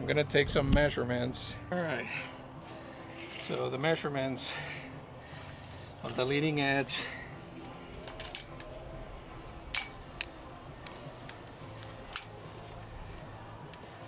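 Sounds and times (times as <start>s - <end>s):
tape measure metallic clicks: 9.7s - 10.0s, 10.8s - 12.4s.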